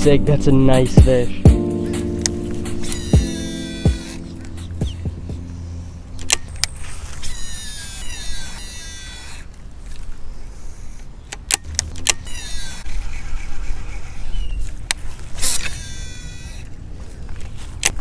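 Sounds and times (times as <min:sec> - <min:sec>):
fishing reel whining: 0:02.8 - 0:04.7, 0:05.9 - 0:11.1, 0:11.9 - 0:14.4, 0:15.3 - 0:16.7
sharp clicks: 0:06.1 - 0:06.8, 0:11.2 - 0:12.8.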